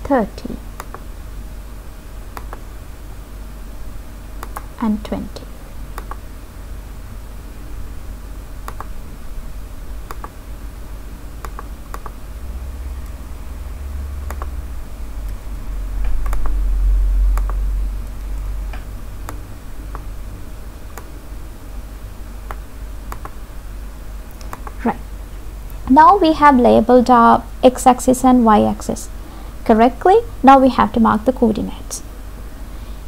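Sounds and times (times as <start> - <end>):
mouse and keyboard clicks: 2.4 - 2.6, 4.4 - 4.7, 6.0 - 6.2, 8.7 - 8.9, 10.1 - 10.4, 11.4 - 12.2, 14.3 - 14.6, 16.2 - 16.6, 22.5 - 23.4, 24.4 - 24.8
low rumble: 12.3 - 20.3.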